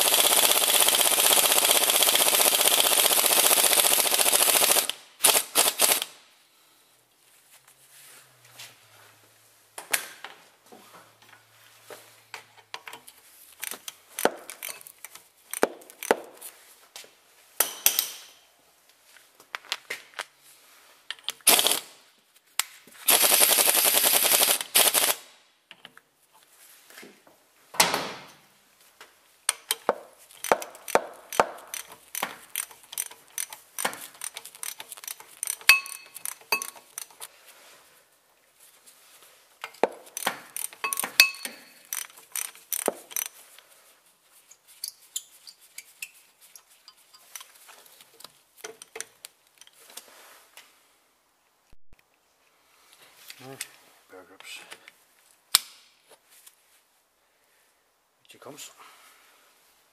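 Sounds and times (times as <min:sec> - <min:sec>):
loud fast tool rattle: 0:00.0 - 0:06.1, 0:21.5 - 0:21.8, 0:23.1 - 0:25.2, 0:30.4 - 0:37.3, 0:41.8 - 0:43.4
short metallic clicks and taps: 0:29.5 - 0:37.3.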